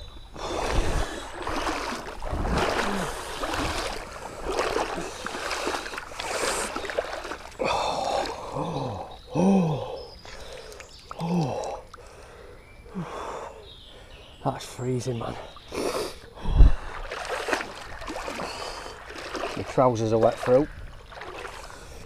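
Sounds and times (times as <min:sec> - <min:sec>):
water splashing and sloshing: 0:00.0 - 0:09.2, 0:10.2 - 0:12.4, 0:14.6 - 0:22.0
person groaning: 0:07.6 - 0:10.0.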